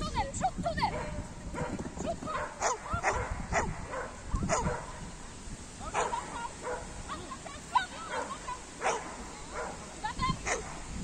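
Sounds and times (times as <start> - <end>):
dog barking: 0.9 - 5.0, 5.9 - 6.9, 8.0 - 9.8, 10.4 - 10.8.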